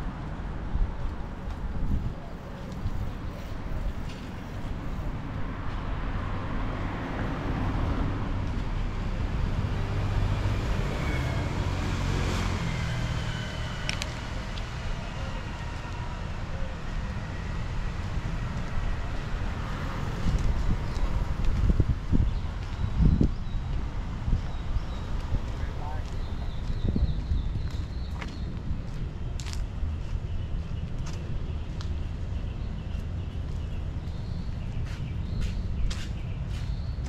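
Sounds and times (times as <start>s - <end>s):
low traffic rumble: 0.0s - 37.0s
car passing by: 4.4s - 16.3s.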